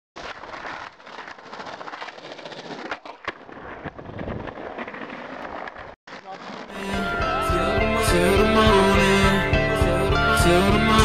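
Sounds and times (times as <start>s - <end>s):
sharp crack: 0.2s - 6.8s
skateboard wheels rolling on paving: 0.2s - 7.4s.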